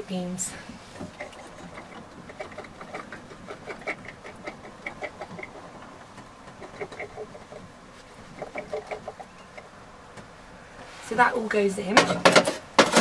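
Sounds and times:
hens clucking: 0.9 - 10.3.

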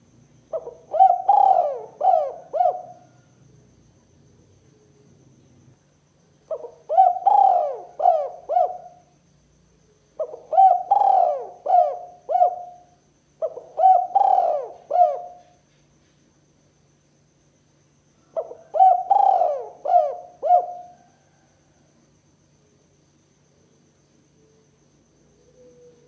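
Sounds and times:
dove cooing: 0.5 - 3.3, 6.5 - 9.1, 10.2 - 15.6, 18.3 - 21.4, 25.3 - 26.0.

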